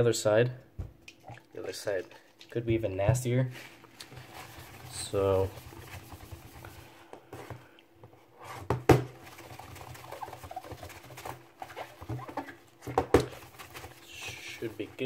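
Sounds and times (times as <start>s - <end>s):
paper towel rubbing phone: 3.5s - 7.0s, 9.2s - 15.0s.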